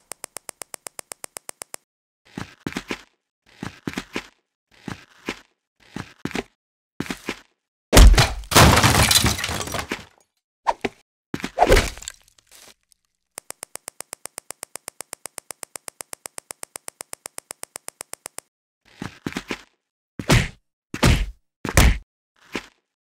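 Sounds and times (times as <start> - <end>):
rapid sharp clicks: 0.0 - 1.9, 13.3 - 18.5
crash and smash: 8.0 - 10.1.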